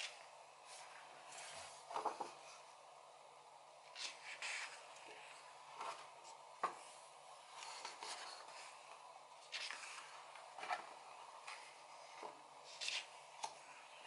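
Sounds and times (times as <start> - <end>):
paper pages rustling: 0.0 - 2.6, 3.9 - 6.8, 7.5 - 13.6
crisp page flicks and taps: 9.5 - 11.7.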